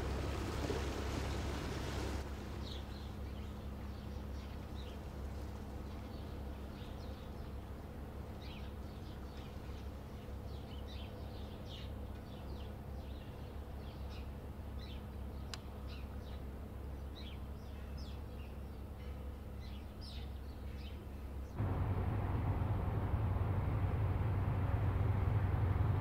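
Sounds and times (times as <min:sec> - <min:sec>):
small birds chirping: 0:02.6 - 0:21.6
ship diesel engine drone: 0:21.0 - 0:26.0.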